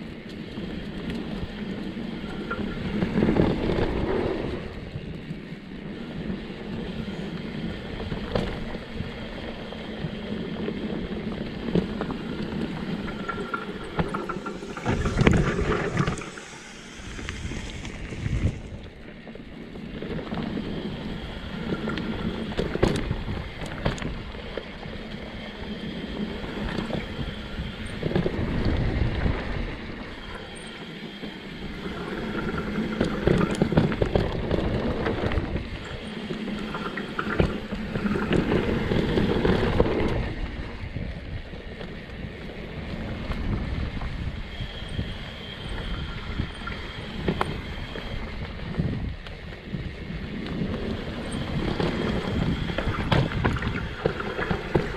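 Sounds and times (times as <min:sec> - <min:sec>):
bike tyres rolling over dirt: 0:00.0 - 0:54.9
bike frame and chain rattling: 0:08.1 - 0:20.6.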